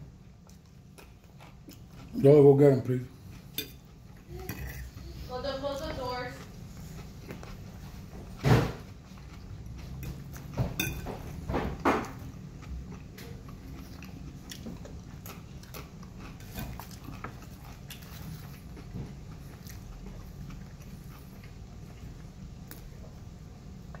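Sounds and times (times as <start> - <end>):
chewing crunchy chips: 0.5 - 5.0, 6.3 - 10.6, 12.1 - 23.0
fork clinking on a plate: 3.5 - 3.8, 10.7 - 11.4.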